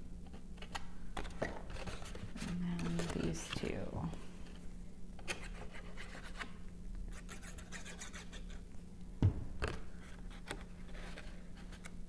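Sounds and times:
paper scratching and rubbing: 0:07.1 - 0:08.6
soft knock: 0:09.2 - 0:09.6.

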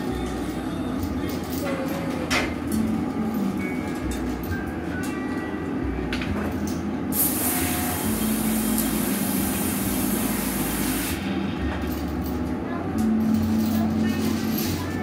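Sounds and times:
furnace burners rumbling: 0:00.0 - 0:15.0
loud hiss: 0:07.2 - 0:11.4.

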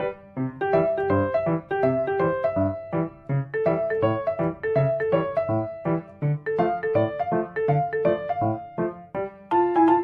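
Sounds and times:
piano music: 0:00.0 - 0:10.0.

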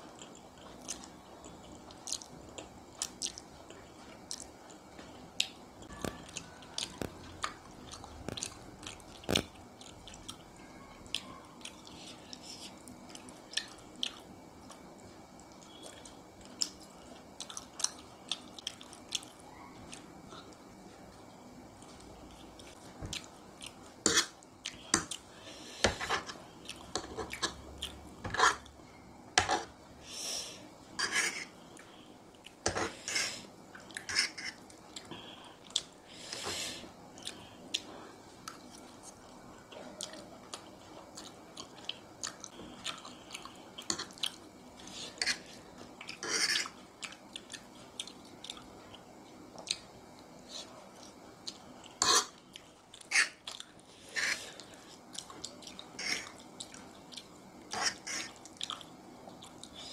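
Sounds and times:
person chewing food: 0:00.0 - 0:29.8, 0:30.5 - 0:36.4, 0:37.1 - 0:59.9
fork clicking and scraping plate: 0:28.2 - 0:28.7, 0:52.0 - 0:52.4.

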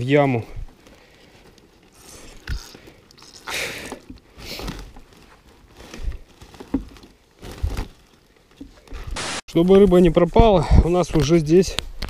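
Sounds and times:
plastic sack rustling: 0:00.0 - 0:09.3.

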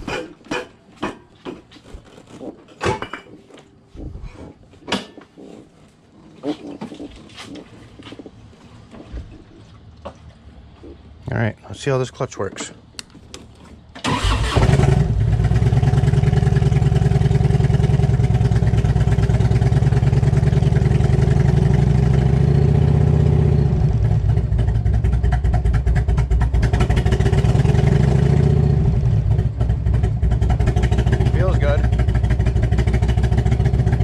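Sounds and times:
motorcycle engine starting and running: 0:13.9 - 0:34.0.

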